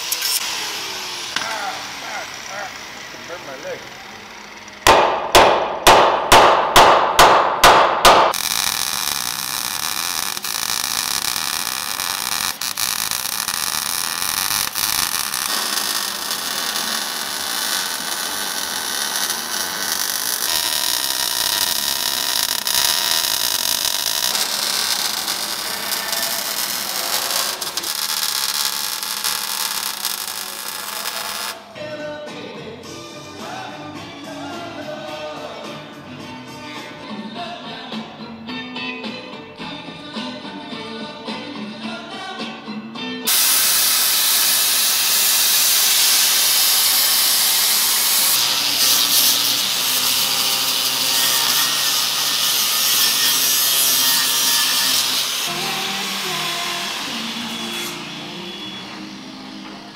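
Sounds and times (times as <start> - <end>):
arc welding hiss: 0.0 - 4.3, 8.1 - 31.7, 43.3 - 59.9
hammer striking steel bracket: 4.9 - 8.4.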